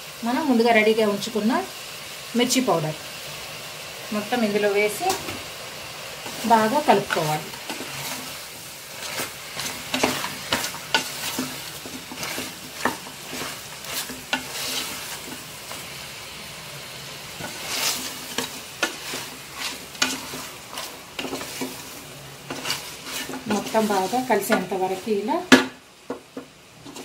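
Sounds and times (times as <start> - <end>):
meat sizzling in oil: 0.0 - 27.0
spoon scraping metal pot: 9.0 - 15.8, 17.4 - 25.2.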